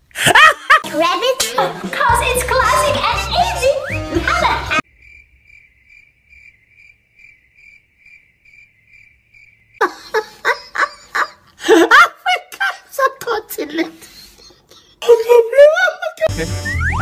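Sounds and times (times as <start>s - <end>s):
cricket chirping: 4.8s - 10.7s.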